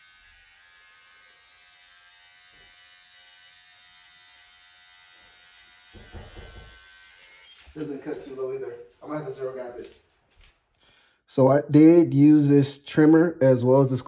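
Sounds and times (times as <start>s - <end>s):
electric hair trimmer buzzing: 0.0s - 8.5s.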